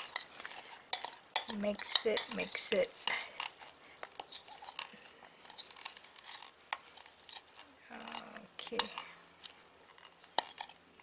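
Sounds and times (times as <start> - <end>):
spoon scraping glass bowl: 0.0 - 10.8.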